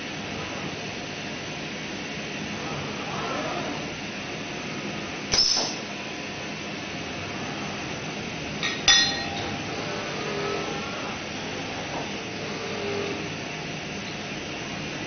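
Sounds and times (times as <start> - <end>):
sharp ringing clink: 8.6 - 9.4.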